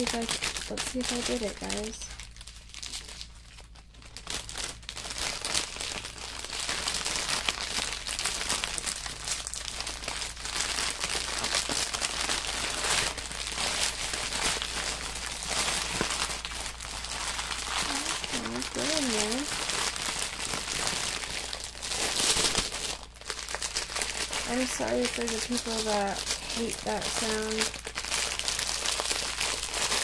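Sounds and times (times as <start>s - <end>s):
plastic bags crinkling: 0.0s - 30.0s.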